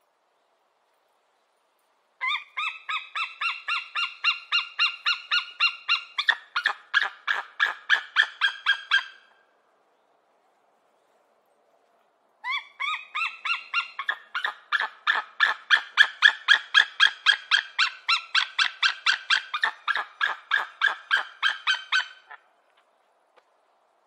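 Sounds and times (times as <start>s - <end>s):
eagle yelping calls: 2.2s - 9.3s, 12.4s - 22.4s.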